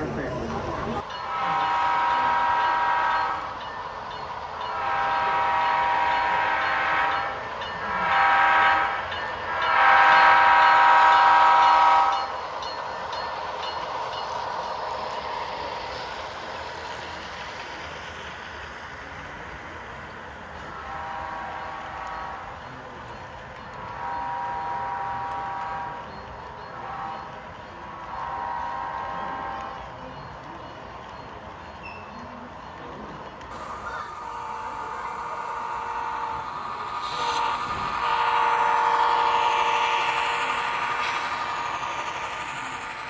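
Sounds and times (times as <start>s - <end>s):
train running noise: 0.0s - 43.0s
train horn blasts: 1.2s - 3.6s, 4.6s - 12.4s, 20.6s - 22.7s, 23.9s - 26.2s, 26.8s - 27.4s, 28.0s - 29.8s, 34.2s - 42.5s.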